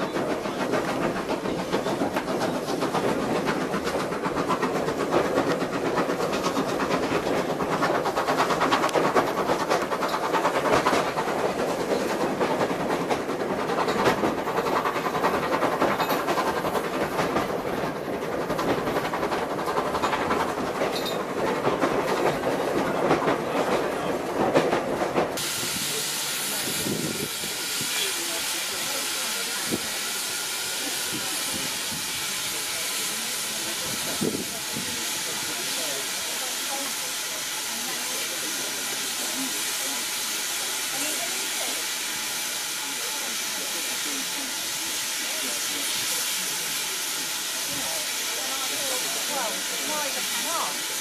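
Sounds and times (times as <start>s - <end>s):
train wheels clattering on rails: 0.0s - 51.0s.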